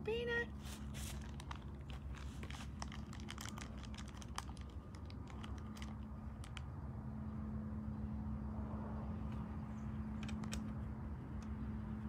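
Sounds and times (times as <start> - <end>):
light clicks and crackles: 1.1 - 6.7.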